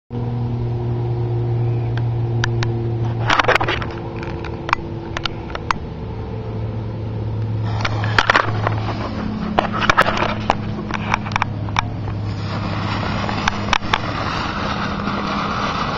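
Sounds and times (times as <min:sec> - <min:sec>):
low mechanical hum: 0:00.1 - 0:15.9
firework fountain crackling: 0:07.5 - 0:15.9.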